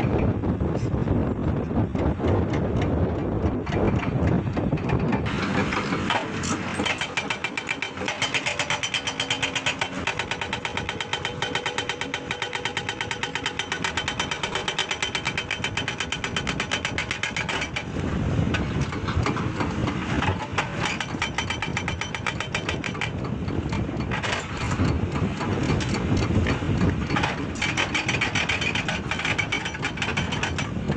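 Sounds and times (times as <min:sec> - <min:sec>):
heavy construction machinery running: 0:00.0 - 0:30.9.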